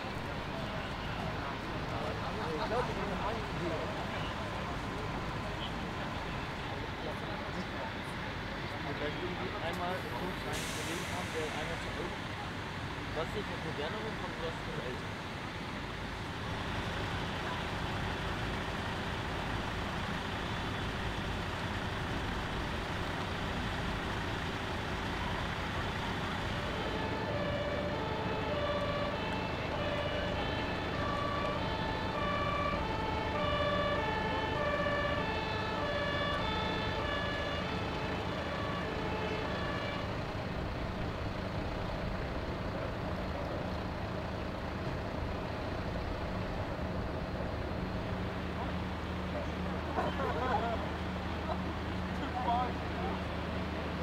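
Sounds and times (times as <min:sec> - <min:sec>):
engine rumble: 0:00.0 - 0:54.0
two-tone siren: 0:25.1 - 0:40.3.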